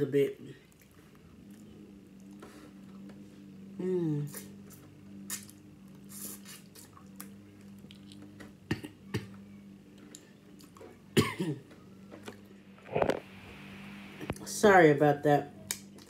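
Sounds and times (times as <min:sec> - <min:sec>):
low background hum: 0:00.0 - 0:16.0
person eating: 0:00.6 - 0:10.9
person coughing and clearing throat: 0:08.7 - 0:09.4, 0:11.2 - 0:11.6.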